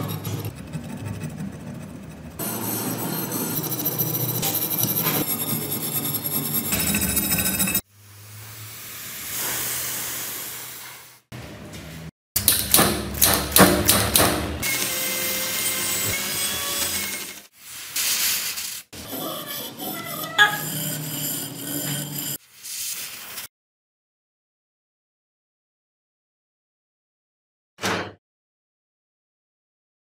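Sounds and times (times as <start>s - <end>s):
wire brush scratching rusty steel: 18.0s - 22.4s.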